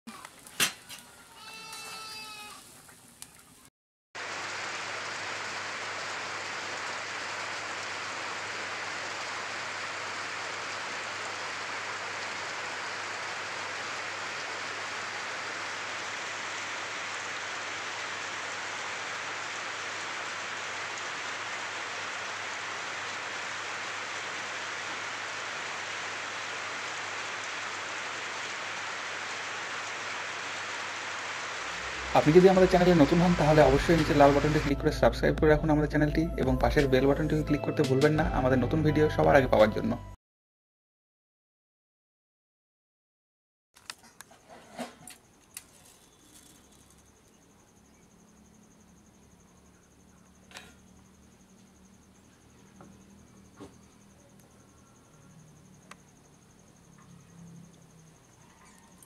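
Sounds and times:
short wavering bleat: 1.4 - 2.6
water running off roof: 4.2 - 34.7
heavy rain pouring: 4.2 - 35.0
click: 50.5 - 50.8.

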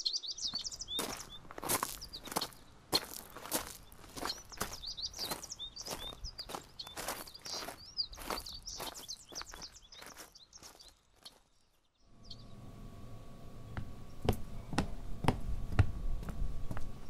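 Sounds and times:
birds chirping: 0.0 - 17.0
footsteps on paved path: 0.4 - 11.6, 13.7 - 17.0
low room hum: 12.0 - 17.0.

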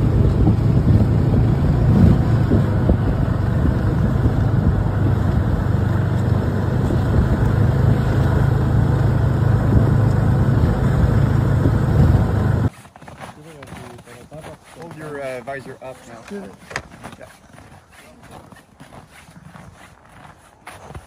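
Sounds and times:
snowmobile engine running: 0.0 - 12.7.

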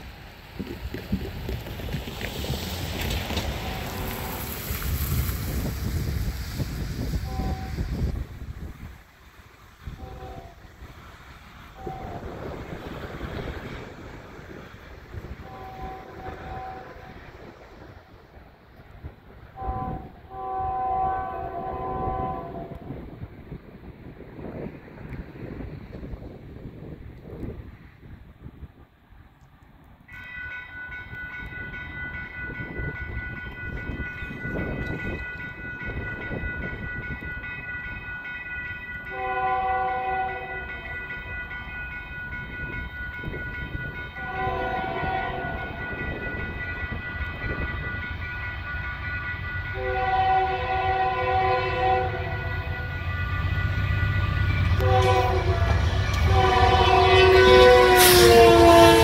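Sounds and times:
locomotive engine rumble: 0.0 - 30.0
crossing bell ringing: 3.3 - 4.8, 7.2 - 8.1, 9.8 - 10.7, 11.7 - 12.6, 15.1 - 17.5, 30.1 - 59.0
locomotive air horn blasts: 3.5 - 4.6, 7.2 - 8.0, 9.9 - 10.7, 11.8 - 12.4, 15.4 - 17.2, 19.6 - 23.0, 39.1 - 40.8, 44.2 - 45.8, 49.7 - 53.0, 54.7 - 59.0.

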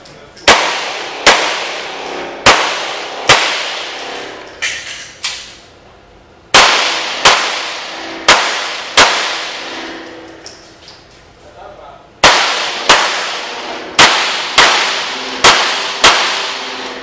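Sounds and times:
handgun shots echoing indoors: 0.4 - 5.6, 6.5 - 10.6, 12.2 - 17.0.

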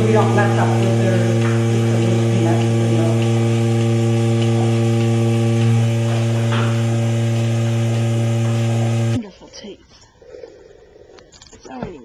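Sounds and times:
vacuum pump motor humming: 0.0 - 9.2.

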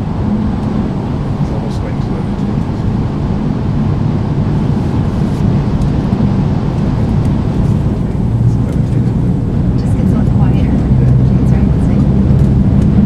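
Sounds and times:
train cabin low rumble: 0.0 - 13.0.

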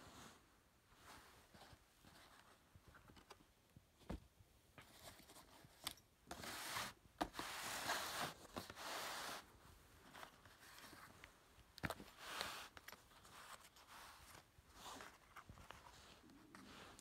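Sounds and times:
rustling of unpacked items: 4.8 - 17.0.

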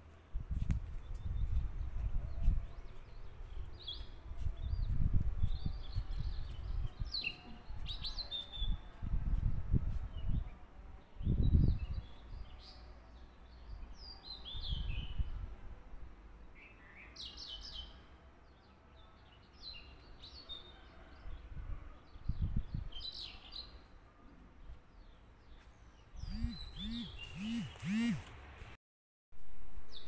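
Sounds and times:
birds chirping: 25.0 - 28.3.

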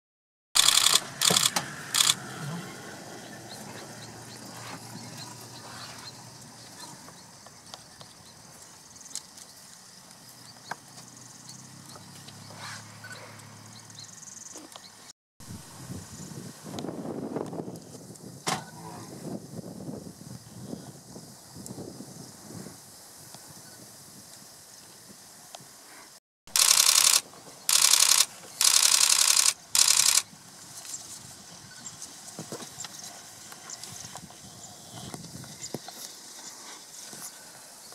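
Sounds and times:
sharp clicks: 0.6 - 2.2, 26.5 - 30.3
zoom motor whirring: 0.6 - 2.2, 26.5 - 30.2
faint insect buzzing: 26.6 - 30.3.

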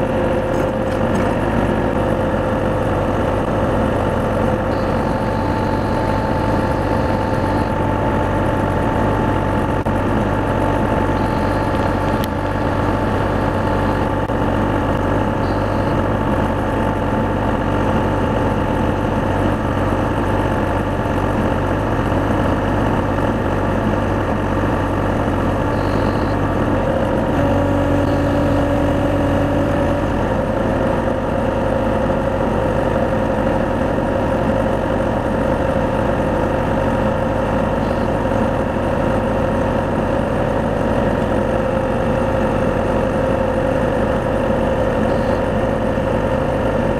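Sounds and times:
excavator engine and hydraulics: 0.0 - 46.9.

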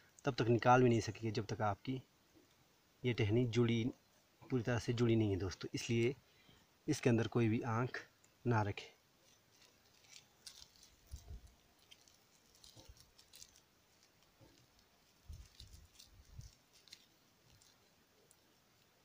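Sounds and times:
plastic strip crinkling: 9.2 - 19.0.

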